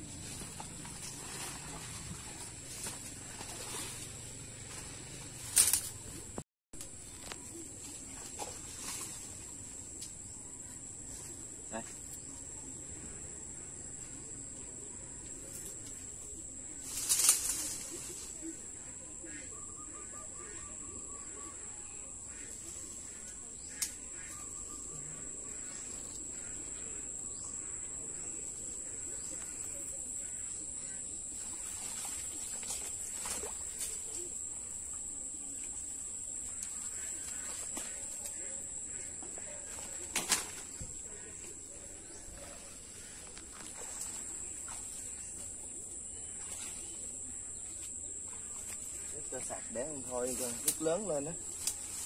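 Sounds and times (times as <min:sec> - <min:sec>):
rustling of leaves and plastic: 0:00.0 - 0:10.3, 0:15.4 - 0:18.6, 0:39.2 - 0:52.0
insects droning: 0:00.0 - 0:52.0.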